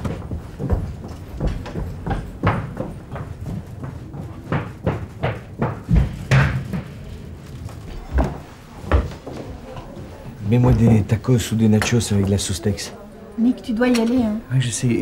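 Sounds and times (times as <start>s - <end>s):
footsteps running: 0.0s - 11.2s.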